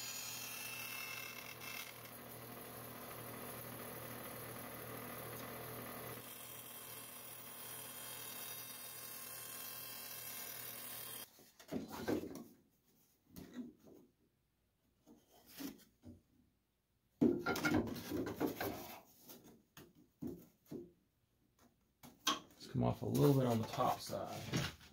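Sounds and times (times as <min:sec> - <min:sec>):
bandsaw running: 0:00.0 - 0:11.3.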